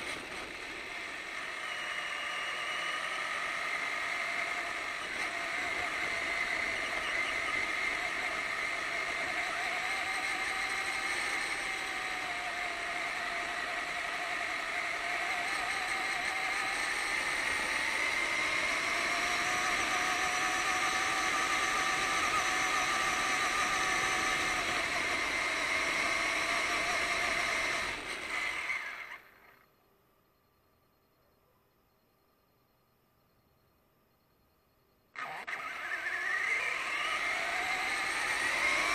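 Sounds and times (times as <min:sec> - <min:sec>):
toy truck motor whine: 0:00.0 - 0:29.7, 0:35.2 - 0:38.9.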